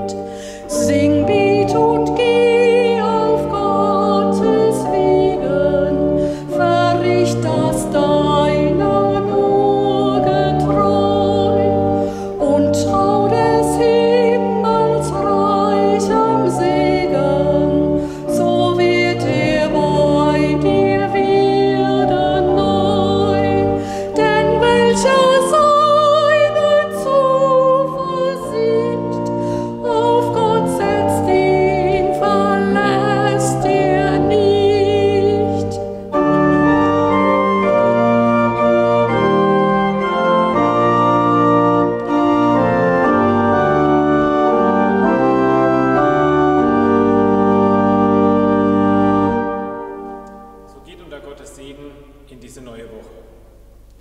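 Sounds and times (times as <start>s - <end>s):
woman singing with vibrato: 0.0s - 37.7s
pipe organ chords: 0.0s - 54.0s.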